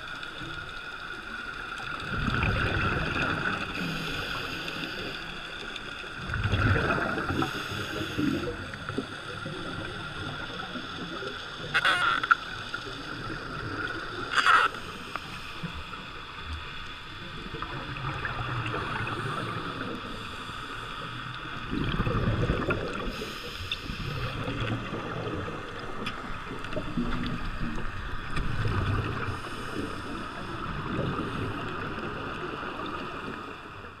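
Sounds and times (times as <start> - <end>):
gurgling exhaled bubbles: 1.5 - 5.1, 6.1 - 15.8, 17.2 - 33.6
regulator inhalation hiss: 3.8 - 5.4, 7.3 - 8.6, 23.1 - 24.4.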